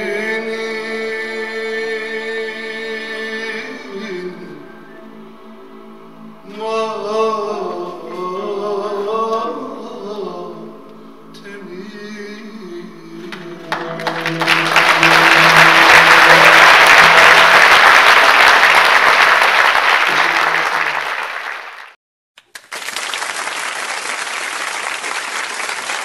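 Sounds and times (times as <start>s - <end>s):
audience applause: 13.3s - 26.0s.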